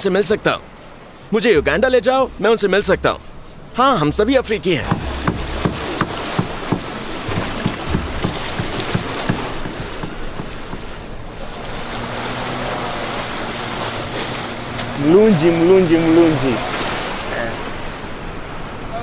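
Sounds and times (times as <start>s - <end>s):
motorboat engine droning: 0.0s - 19.0s
water splashing on rocky shore: 4.7s - 15.0s, 16.1s - 18.1s.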